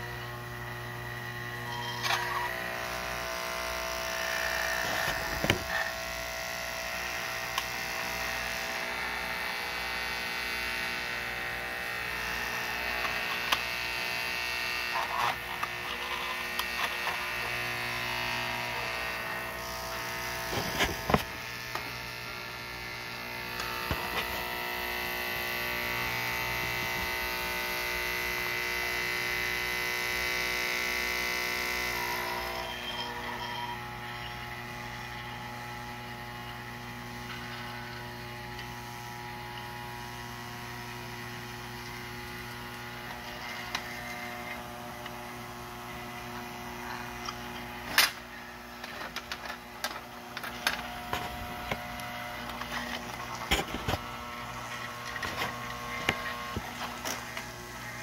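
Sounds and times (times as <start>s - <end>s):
vibrator buzzing: 0.0s - 58.0s.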